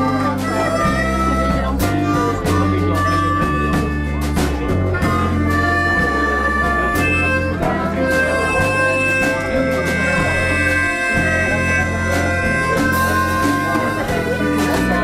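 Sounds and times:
harmonicas playing: 0.0 - 15.0.

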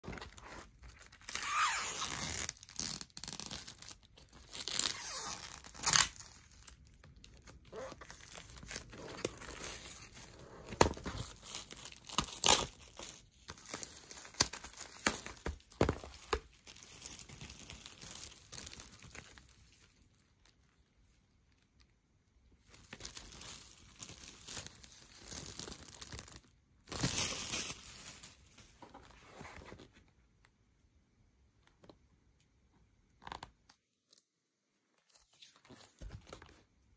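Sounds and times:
plastic shrink wrap crinkling: 0.0 - 21.9, 22.6 - 28.9.

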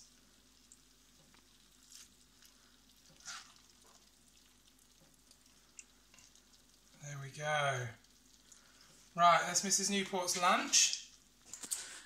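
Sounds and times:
spatula scraping pan: 3.1 - 3.7.

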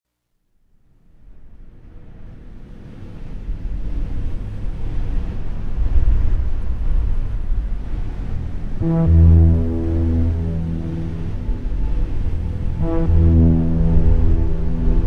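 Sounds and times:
muffled underwater rumble: 3.6 - 15.0.

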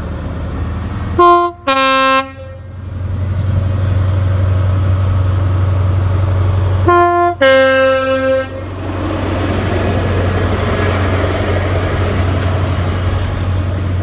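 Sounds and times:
passing train rumble: 0.0 - 14.0
two-tone train horn: 1.2 - 2.8, 6.8 - 8.7.

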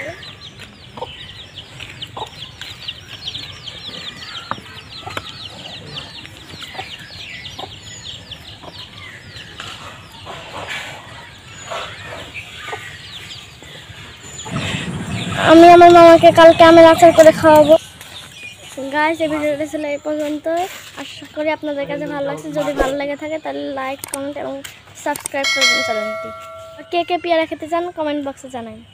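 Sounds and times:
chickens peeping and clucking: 0.0 - 23.5, 25.4 - 27.4
sharp clicks: 24.0 - 24.2.

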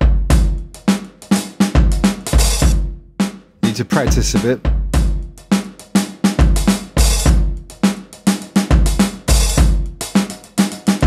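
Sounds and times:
drum breakbeat: 3.6 - 5.2.

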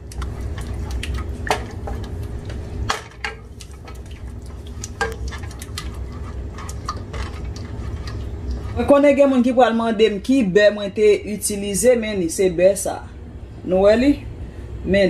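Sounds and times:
wooden spoon scraping pot: 0.1 - 9.4.

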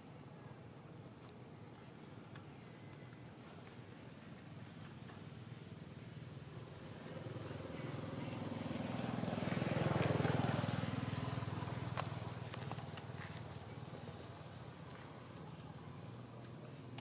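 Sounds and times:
passing vehicle engine hum: 6.4 - 16.8.

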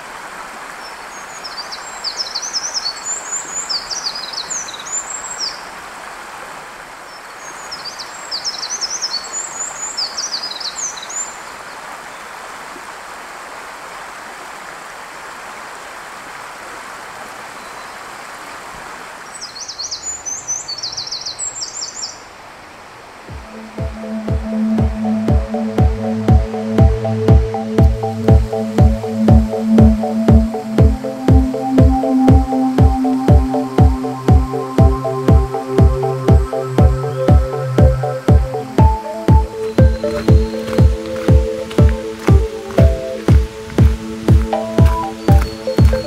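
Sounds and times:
stream rushing: 0.0 - 46.0
wren singing trills: 23.4 - 46.0.

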